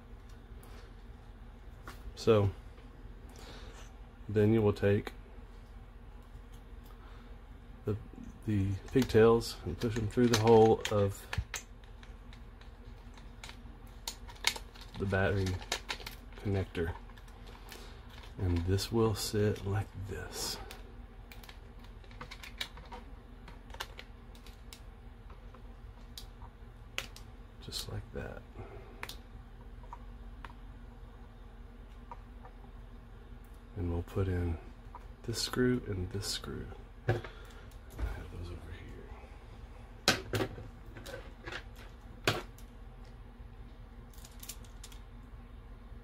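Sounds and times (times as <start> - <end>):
steady low hum: 0.0 - 46.0
plastic parts clicking: 8.8 - 12.4
plastic parts clicking and tapping: 8.8 - 18.7, 20.7 - 26.3.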